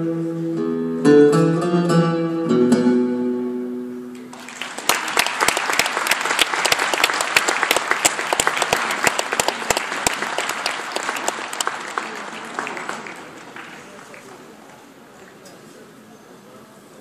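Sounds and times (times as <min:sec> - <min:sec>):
audience applauding: 0:04.2 - 0:14.9.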